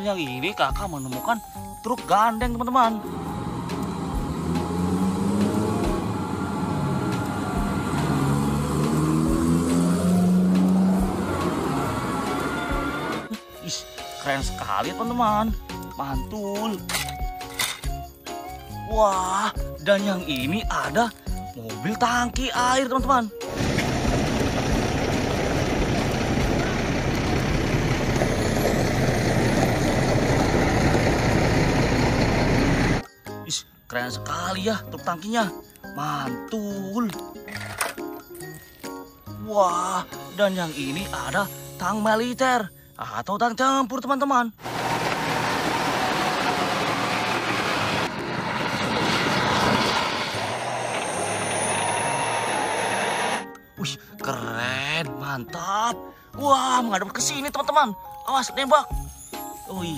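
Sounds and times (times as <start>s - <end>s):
truck engine rumbling: 2.1s - 13.4s, 23.4s - 33.0s, 44.6s - 53.4s
track and ground noise: 2.6s - 13.4s, 23.5s - 33.0s, 44.6s - 53.4s
thin high whine: 48.9s - 53.5s.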